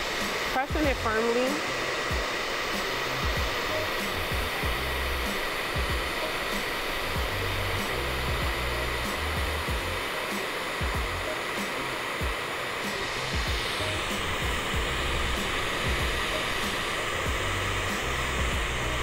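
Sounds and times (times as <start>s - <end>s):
blow dryer running: 0.0s - 19.0s.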